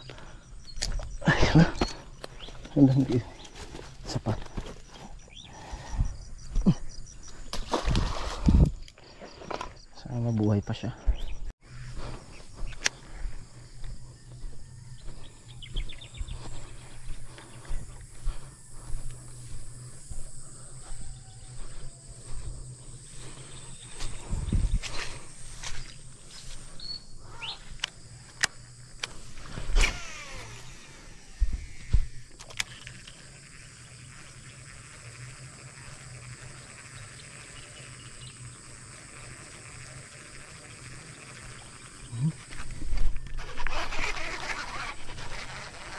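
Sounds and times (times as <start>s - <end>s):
insects chirring: 0.0s - 45.9s
fishing reel whirring: 16.4s - 45.9s.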